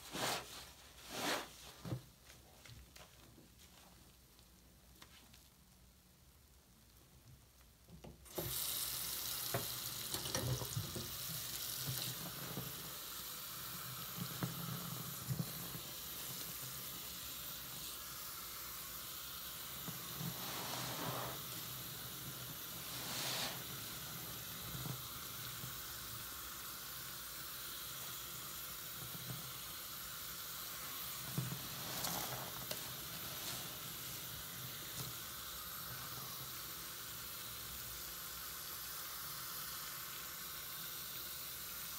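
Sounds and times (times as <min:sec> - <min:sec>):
sponge squelching: 0:00.0 - 0:01.9
tap running into a basin: 0:08.2 - 0:17.0.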